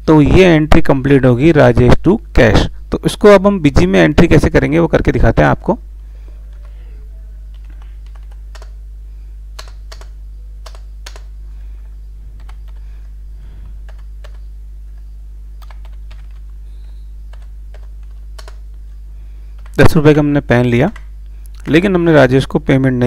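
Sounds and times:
low electrical hum: 0:00.0 - 0:23.0
computer keyboard keystrokes: 0:07.5 - 0:08.8, 0:09.6 - 0:11.3, 0:12.4 - 0:12.8, 0:13.8 - 0:14.4, 0:15.6 - 0:18.6.

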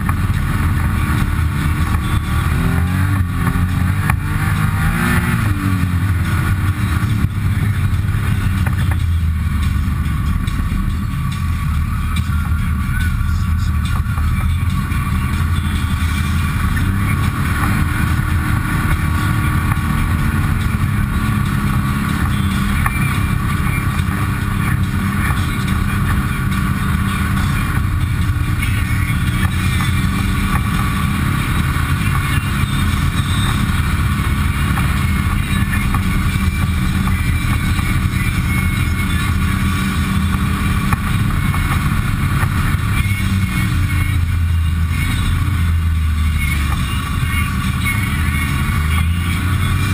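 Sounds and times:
utility vehicle engine running: 0:00.0 - 0:49.9.

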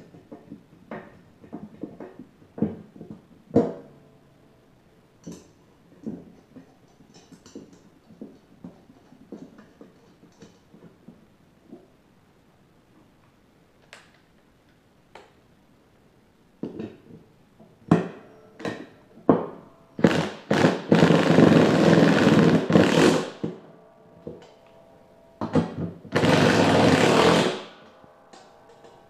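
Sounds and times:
impact driver running: 0:26.2 - 0:27.7.

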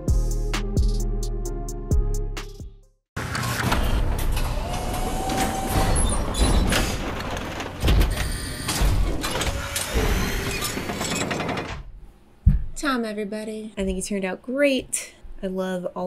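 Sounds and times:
mechanical door whooshing: 0:03.2 - 0:11.9
heavy thuds: 0:11.7 - 0:12.8.

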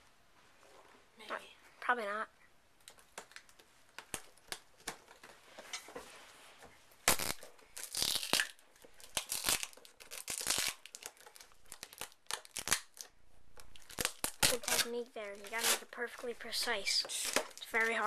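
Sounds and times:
packing tape ripping: 0:07.0 - 0:16.0, 0:17.0 - 0:17.7.

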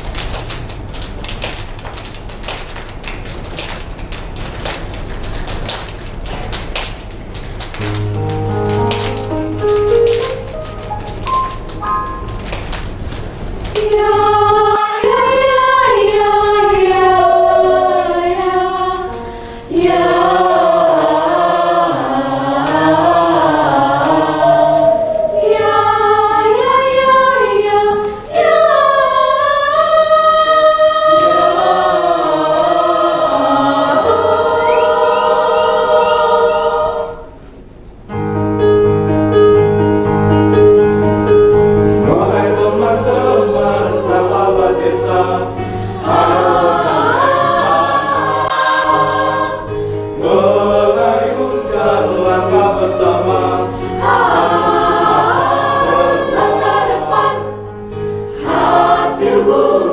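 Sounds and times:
mixed choir singing in harmony: 0:13.8 - 0:37.4, 0:42.0 - 0:59.9.

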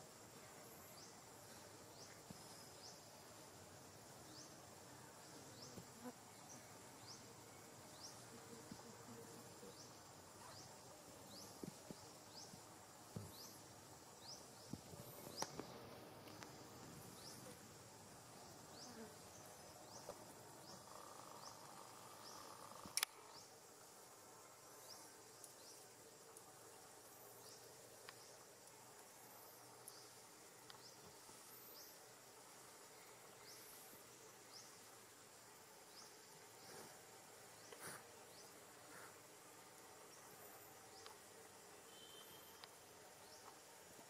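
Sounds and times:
sharp click: 0:22.9 - 0:23.2.

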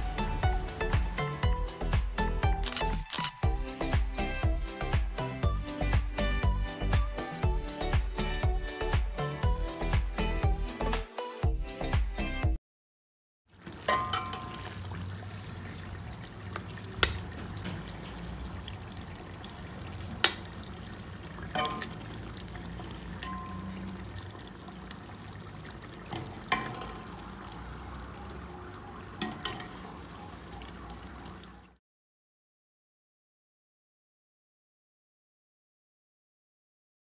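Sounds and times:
stew bubbling in a pot: 0:13.5 - 0:31.8
spoon knocking against pot: 0:13.8 - 0:14.6.

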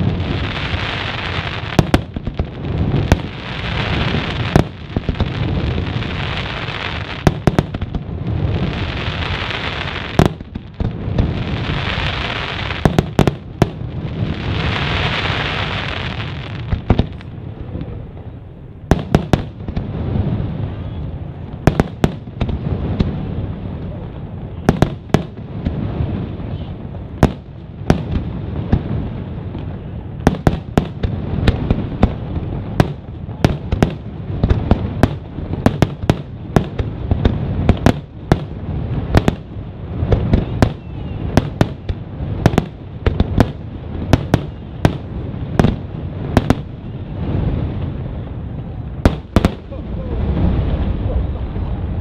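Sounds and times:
low rumble: 0:16.0 - 0:52.0.

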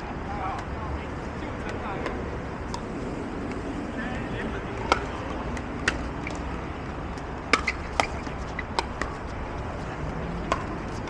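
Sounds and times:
paddles hitting plastic ball: 0:04.7 - 0:09.8.

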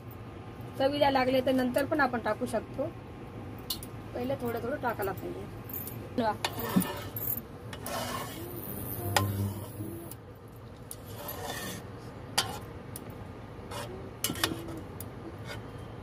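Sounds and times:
metal spoon scraping in pot: 0:06.4 - 0:10.1, 0:10.9 - 0:12.7, 0:13.7 - 0:14.8, 0:15.4 - 0:15.9.

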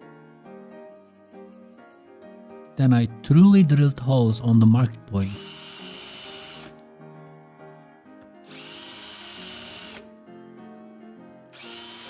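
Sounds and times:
soft background music: 0:00.0 - 0:12.0
power drill boring into wood: 0:05.2 - 0:06.8, 0:08.4 - 0:10.1, 0:11.6 - 0:12.0.

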